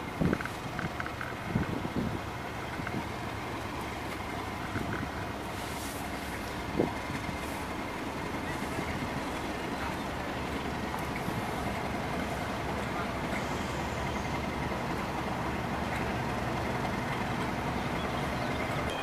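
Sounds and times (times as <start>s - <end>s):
diesel locomotive engine running: 0.0s - 19.0s.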